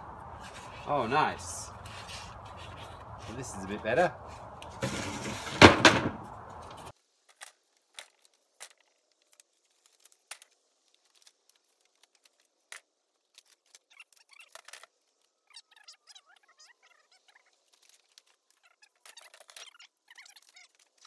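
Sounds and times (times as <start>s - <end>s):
light scrapes and squeaks: 0.2s - 5.6s, 13.4s - 21.0s
wooden boards clicking and knocking: 4.7s - 6.9s.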